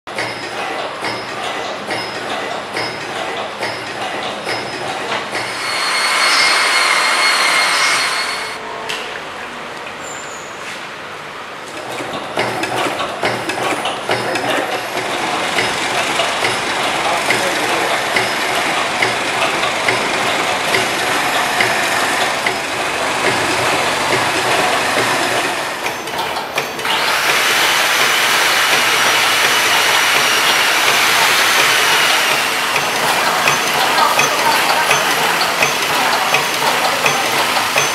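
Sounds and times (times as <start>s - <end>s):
packing machine clicking and clatter: 11.6s - 37.9s.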